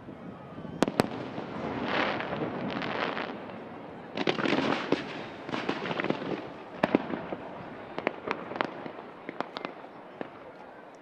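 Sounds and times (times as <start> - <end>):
fireworks crackling: 0.0 - 11.0
firework bangs: 0.8 - 10.5
firework pops: 4.2 - 7.3.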